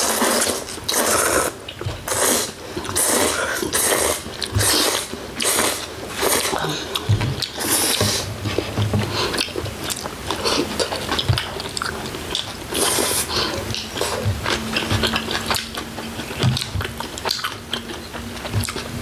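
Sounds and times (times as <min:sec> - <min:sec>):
slurp: 0:00.0 - 0:08.3
wet chewing: 0:00.0 - 0:19.0.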